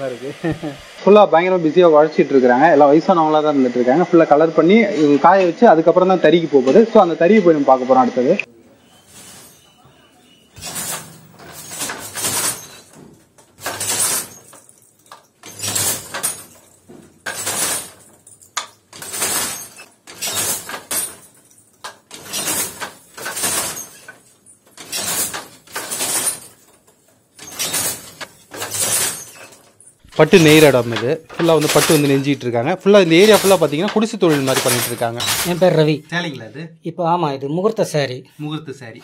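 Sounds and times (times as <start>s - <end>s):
wooden loom clacking: 9.1s - 35.9s.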